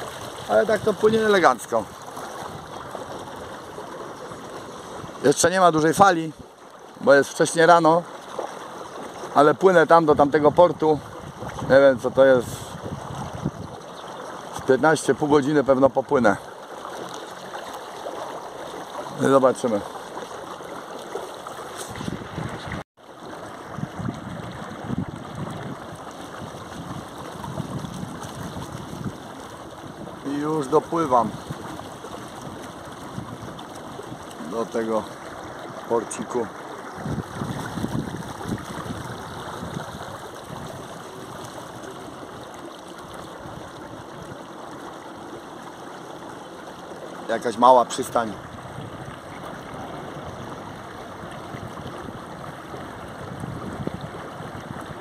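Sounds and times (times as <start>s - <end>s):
water rushing along a hull: 0.0s - 55.0s
wind buffeting microphone: 10.1s - 14.7s, 21.9s - 22.8s, 23.5s - 42.5s, 48.3s - 55.0s.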